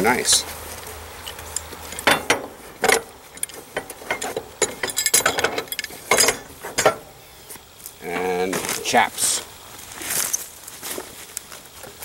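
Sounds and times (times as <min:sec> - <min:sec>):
metal gear clinking: 0:01.2 - 0:07.1.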